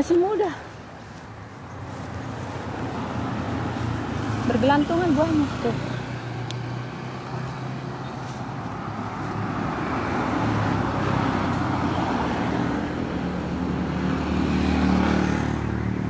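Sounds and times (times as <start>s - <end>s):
vehicle engine and tyre noise: 0.0s - 16.0s.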